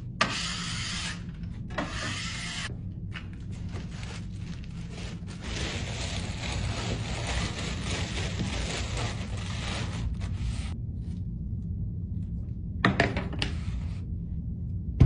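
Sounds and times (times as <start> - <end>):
steady low hum: 0.0 - 15.0
plastic bag rustling: 3.4 - 10.7.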